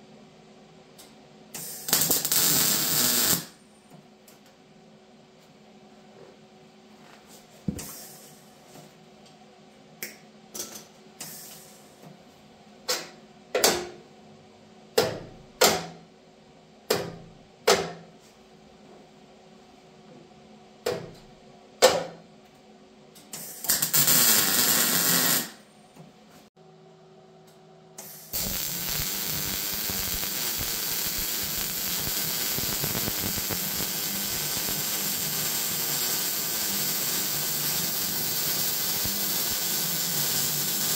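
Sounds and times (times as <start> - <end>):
arc welding crackling hiss: 1.6 - 3.6, 23.4 - 25.6, 28.0 - 40.9.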